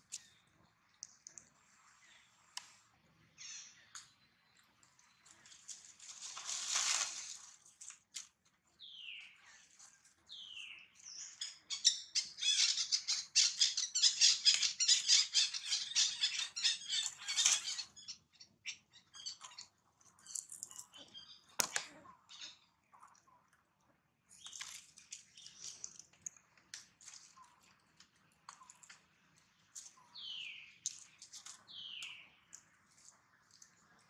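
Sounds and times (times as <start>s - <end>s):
birds chirping and chattering: 10.3s - 23.4s, 27.2s - 34.0s.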